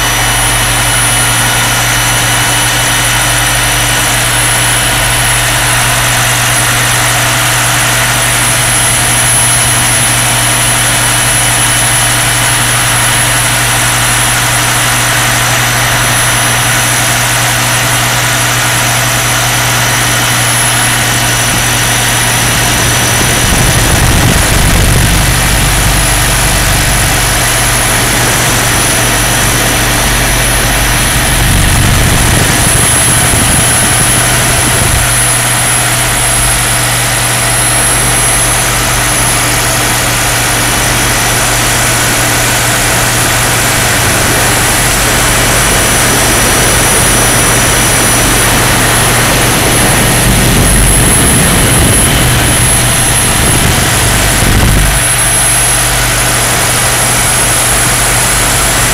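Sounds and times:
helicopter engine and rotor drone: 0:00.0 - 0:58.9
thin high whine: 0:00.0 - 0:58.9
low rumble: 0:20.7 - 0:58.9.

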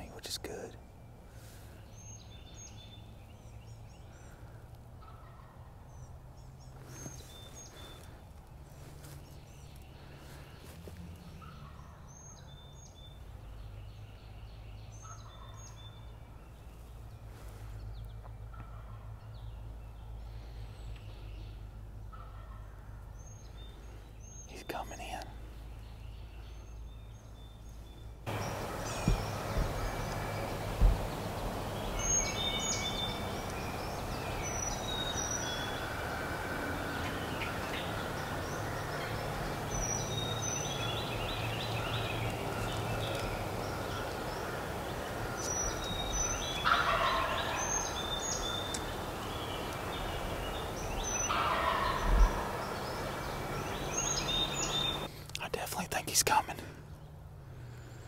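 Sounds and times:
songbirds chirping: 0:00.0 - 0:58.0
distant turkey gobbling: 0:05.0 - 0:05.7, 0:22.1 - 0:22.9, 0:28.3 - 0:55.1
low thumps: 0:28.3 - 0:31.6.

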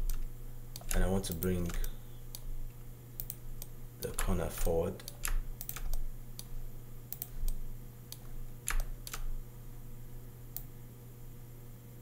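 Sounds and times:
keyboard and mouse clicks: 0:00.0 - 0:02.5, 0:04.0 - 0:09.3
steady low hum: 0:00.0 - 0:12.0.

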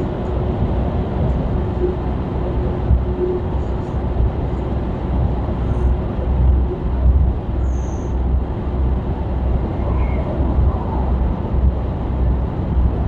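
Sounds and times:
truck diesel engine drone: 0:00.0 - 0:13.0.

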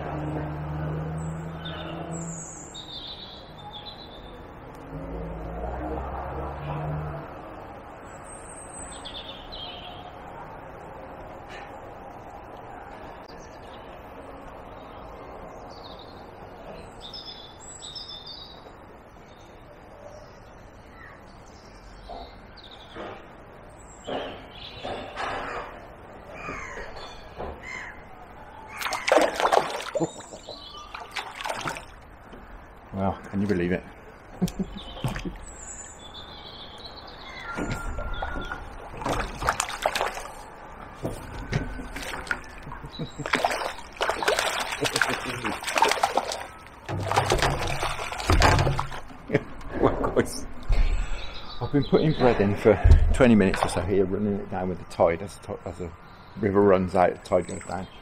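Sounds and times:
small bird chirping: 0:28.7 - 0:31.8
fish splashing and thrashing: 0:28.7 - 0:32.3, 0:34.4 - 0:35.7, 0:37.5 - 0:49.6.

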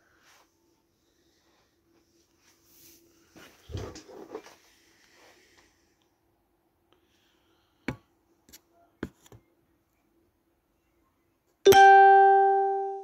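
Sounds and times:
plucked string note ringing: 0:11.7 - 0:13.0.

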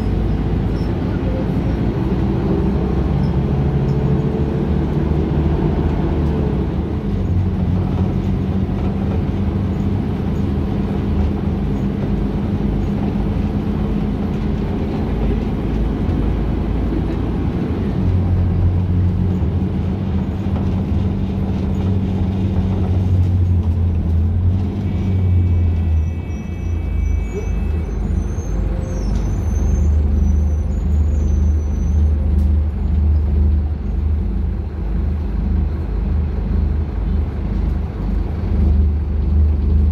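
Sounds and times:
bus diesel engine running: 0:00.0 - 0:39.9
road and body rumble: 0:00.0 - 0:39.9
brief high tone: 0:24.9 - 0:30.4.

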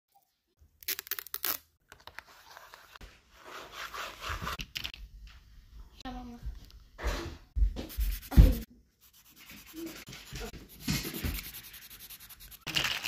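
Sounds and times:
paper sheets rustling and flicking: 0:07.8 - 0:13.0
hand rubbing across paper: 0:07.9 - 0:12.6.

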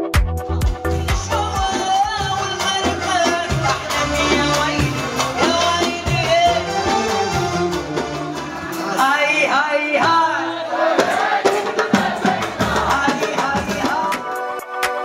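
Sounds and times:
goblet drum percussion: 0:00.0 - 0:09.2, 0:10.0 - 0:15.0
woman singing into a microphone: 0:00.6 - 0:07.2, 0:08.8 - 0:10.7, 0:12.6 - 0:14.3.

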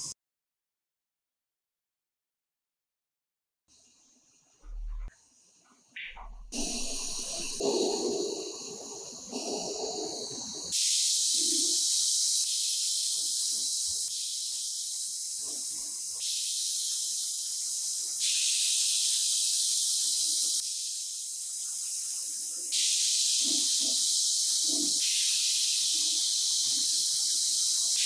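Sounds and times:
gas torch flame rushing: 0:06.5 - 0:11.8
spray gun hissing: 0:06.5 - 0:28.0.

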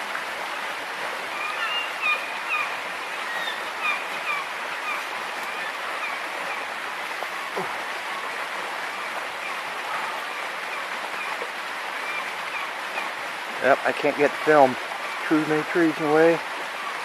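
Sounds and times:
river rushing: 0:00.0 - 0:17.0.

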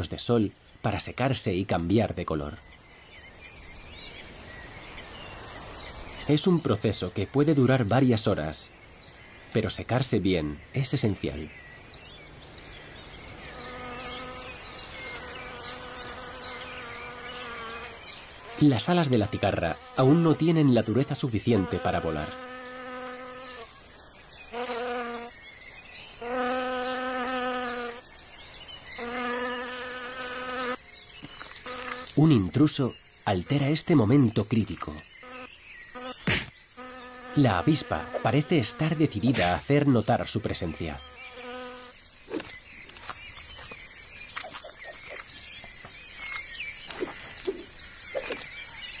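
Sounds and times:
wasp wings buzzing: 0:13.3 - 0:20.6, 0:21.5 - 0:25.4, 0:26.1 - 0:28.2, 0:28.8 - 0:32.2, 0:35.1 - 0:39.5, 0:41.0 - 0:48.6.

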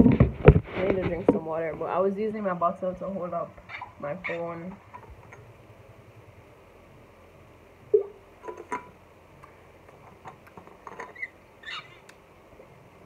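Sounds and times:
faint background hiss: 0:00.0 - 0:13.0
water bottle handling noise: 0:08.0 - 0:09.0.

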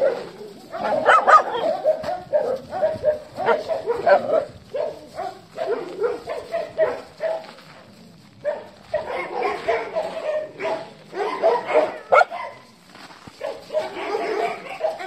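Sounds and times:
dogs barking and yipping: 0:00.0 - 0:15.0.

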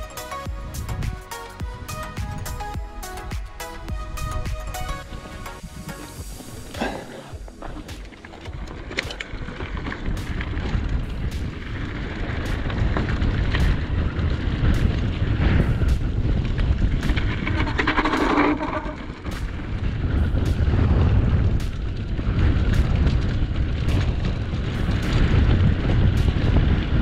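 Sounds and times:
wind buffeting microphone: 0:00.0 - 0:27.0
bike knocks and rattles: 0:06.2 - 0:27.0.

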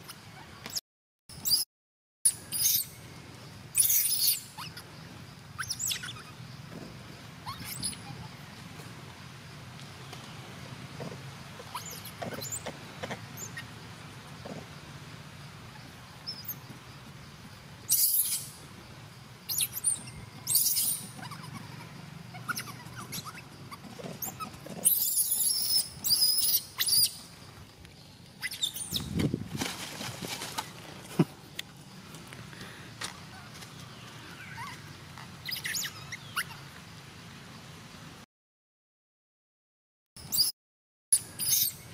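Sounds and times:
baby monkey squeaking cries: 0:02.3 - 0:02.9, 0:03.8 - 0:04.8, 0:05.6 - 0:06.4, 0:07.4 - 0:08.3, 0:11.7 - 0:12.6, 0:17.9 - 0:18.5, 0:19.5 - 0:27.2, 0:28.4 - 0:29.1, 0:35.4 - 0:36.6, 0:41.4 - 0:41.8.

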